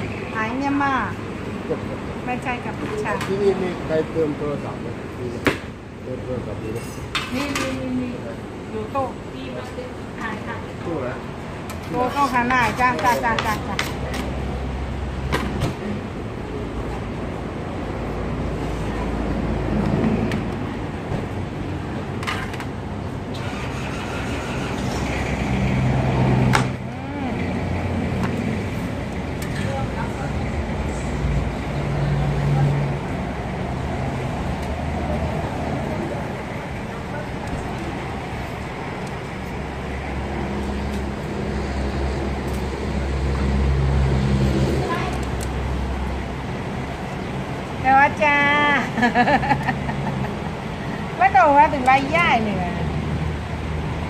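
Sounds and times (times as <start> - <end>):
market background noise: 0.0 - 54.0.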